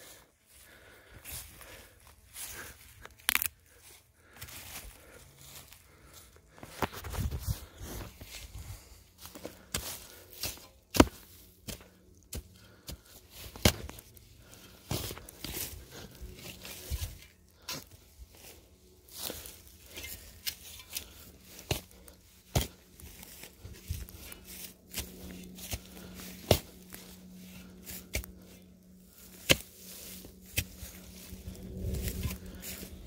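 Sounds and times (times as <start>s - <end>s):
steady low hum: 0.0s - 33.0s
roots cracking and snapping: 2.9s - 4.4s, 9.6s - 17.8s.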